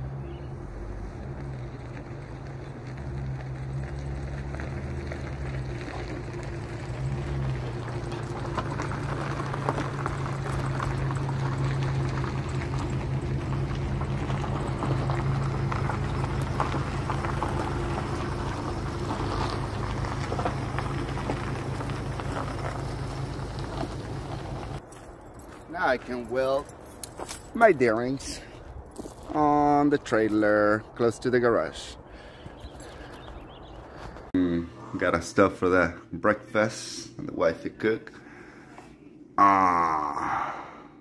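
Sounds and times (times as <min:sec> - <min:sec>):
hissing crackling noise: 0:01.3 - 0:24.8.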